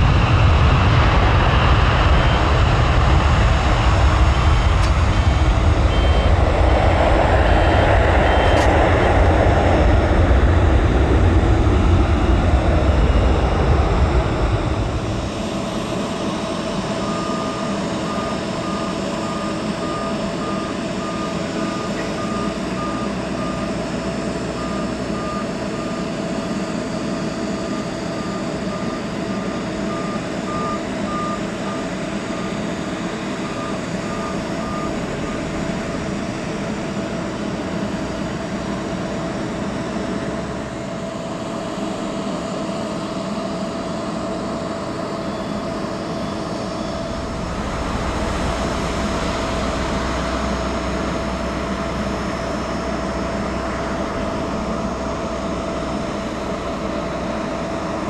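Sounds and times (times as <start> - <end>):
low engine rumble: 0.0 - 25.4, 44.6 - 58.0
ground equipment whine and hum: 0.0 - 58.0
vehicle warning beeper: 2.0 - 2.7, 4.0 - 8.7, 17.0 - 23.8, 24.5 - 26.1, 27.6 - 32.6, 33.3 - 36.3.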